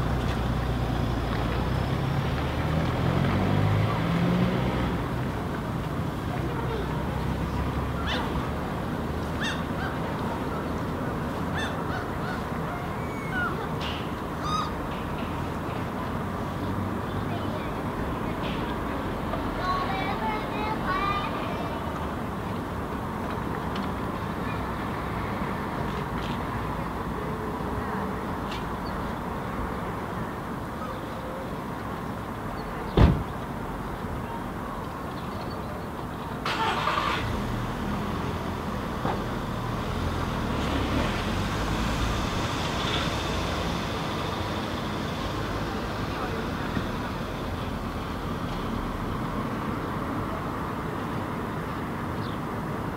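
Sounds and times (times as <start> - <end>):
city traffic rumble: 0.0 - 52.9
crow calls: 9.4 - 10.0, 11.5 - 13.7, 14.4 - 14.8
sudden loud thump: 33.0 - 33.3.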